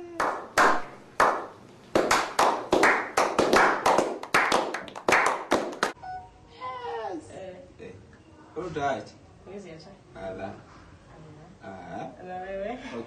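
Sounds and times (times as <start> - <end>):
people clapping: 0.0 - 6.0.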